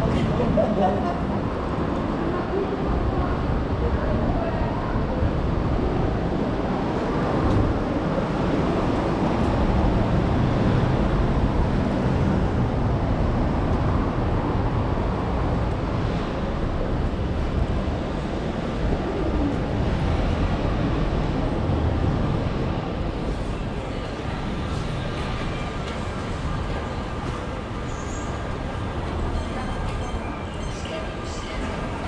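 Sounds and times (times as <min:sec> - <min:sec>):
traffic noise: 0:00.0 - 0:32.0.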